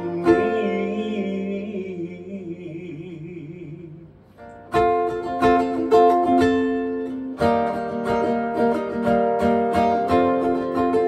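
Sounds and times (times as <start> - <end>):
nylon-string guitar strummed chords: 3.5 - 11.0.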